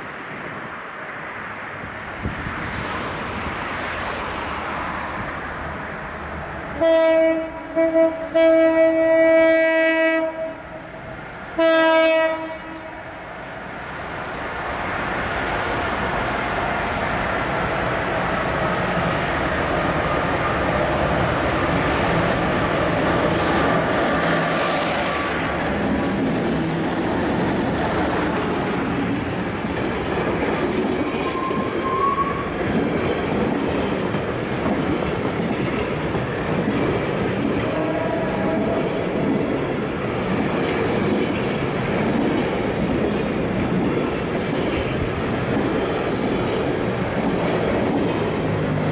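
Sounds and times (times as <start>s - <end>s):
train wheels clattering over joints: 25.4s - 37.8s
wheel squeal: 31.2s - 32.5s.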